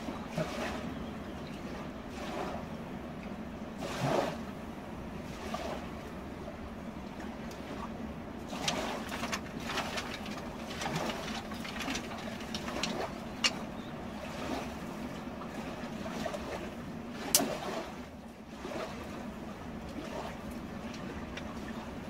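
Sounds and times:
dry twigs snapping: 8.6 - 13.7.

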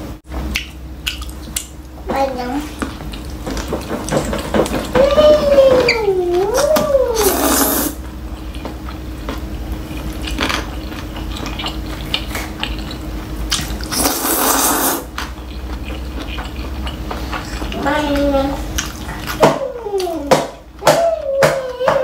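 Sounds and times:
wet chewing and mouth smacking: 0.5 - 2.0, 2.7 - 5.2, 5.8 - 20.3
noodles slurped: 7.1 - 8.0, 11.6 - 15.1.

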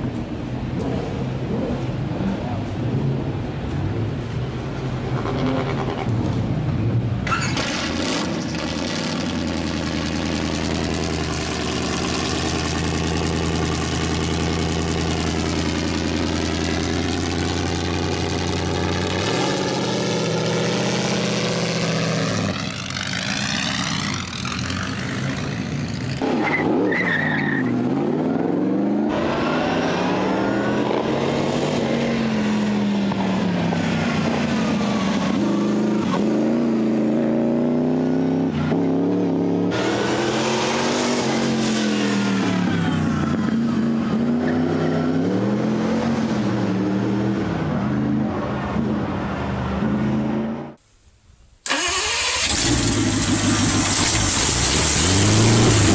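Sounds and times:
racing engine revving: 27.7 - 50.8, 51.7 - 55.9.

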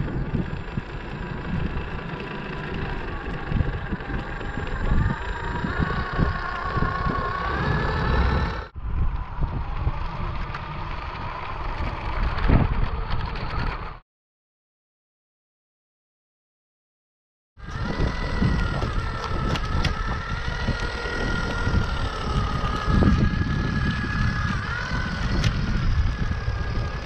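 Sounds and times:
electric motor whining: 0.0 - 14.0, 17.6 - 27.0
wind buffeting microphone: 0.0 - 14.0, 17.6 - 27.0.

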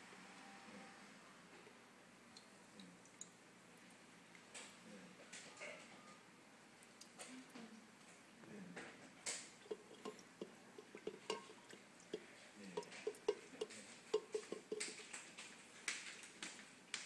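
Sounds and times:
water splashing in a bucket: 9.6 - 15.4.

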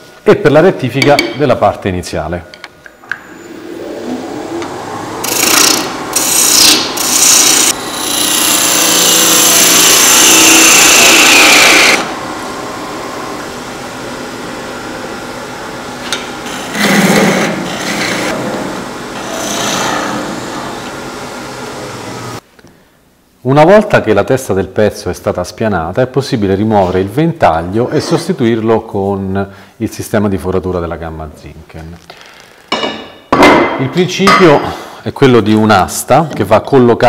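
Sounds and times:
wood lathe running: 3.6 - 14.6, 16.1 - 20.8
gouge cutting spinning wood: 4.6 - 12.3, 16.4 - 18.5.

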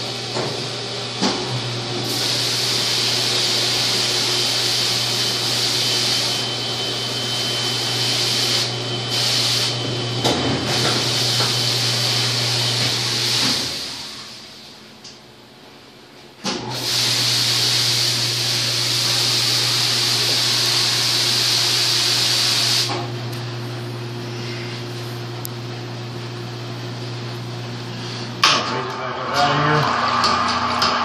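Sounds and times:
ultrasonic cleaning tank hiss: 2.0 - 10.0, 10.6 - 14.8, 16.7 - 23.0.

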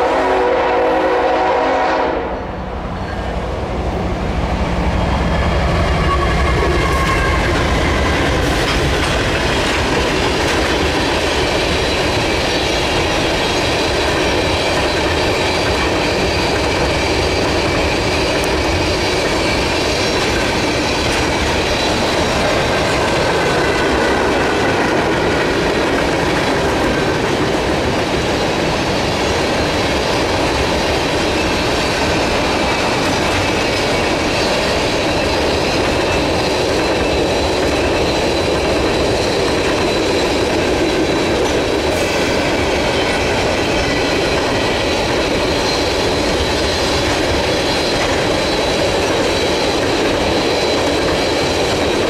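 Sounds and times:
train wheels clattering on rail: 3.1 - 52.0
high-pitched wheel squealing: 5.4 - 8.8.

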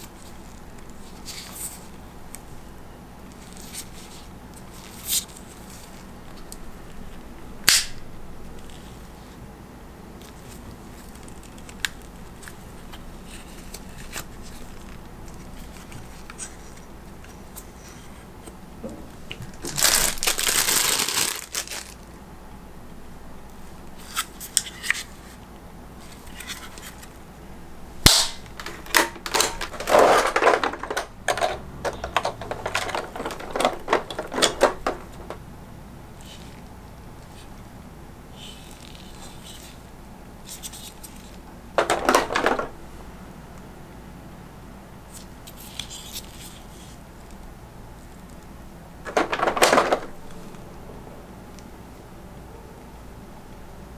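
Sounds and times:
packaging rustling: 19.1 - 22.1, 28.0 - 35.5, 49.0 - 50.5
plastic parts clicking: 28.1 - 35.4, 41.8 - 42.7, 49.1 - 50.3.

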